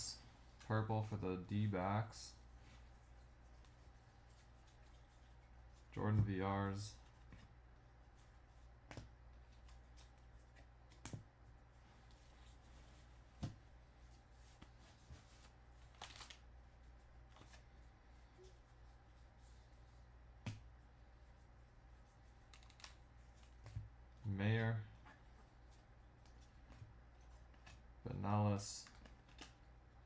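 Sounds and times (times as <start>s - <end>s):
low steady hum: 0.0s - 30.0s
cards sliding and flicking: 22.4s - 23.8s.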